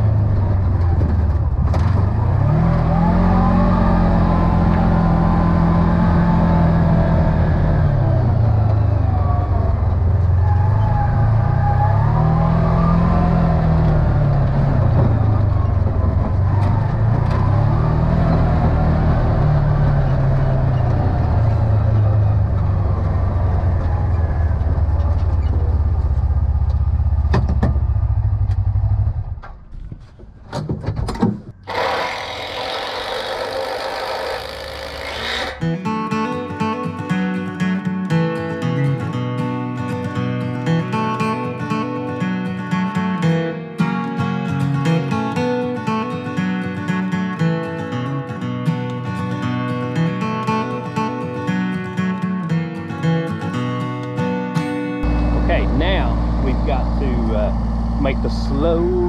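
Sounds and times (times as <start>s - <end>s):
utility vehicle engine running: 0.0s - 30.2s, 55.0s - 59.0s.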